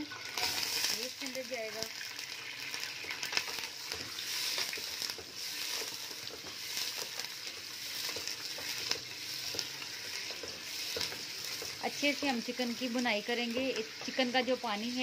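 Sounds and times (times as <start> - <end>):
chicken frying in hot oil: 0.0 - 15.0
wooden spatula scraping pot: 3.1 - 14.5.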